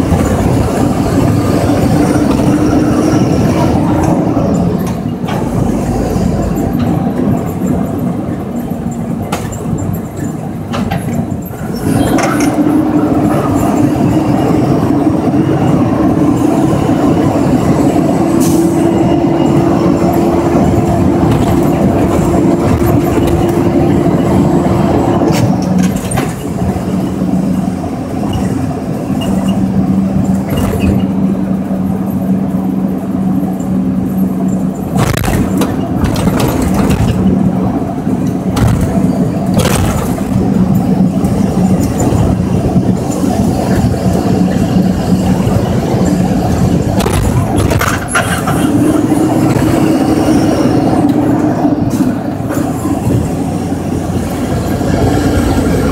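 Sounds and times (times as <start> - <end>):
road rumble: 0.0 - 55.9
truck engine drone: 0.0 - 55.9
knocks and rattles: 34.8 - 37.5, 38.2 - 44.3.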